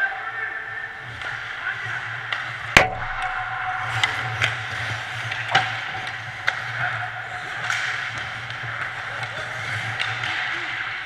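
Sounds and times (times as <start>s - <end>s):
hockey sticks and puck clacking: 0.0s - 11.0s
steady low hum: 2.8s - 5.3s.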